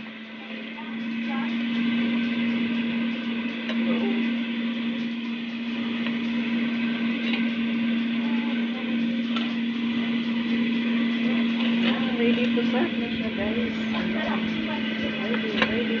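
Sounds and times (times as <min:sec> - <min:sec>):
air fryer fan humming: 0:00.0 - 0:16.0.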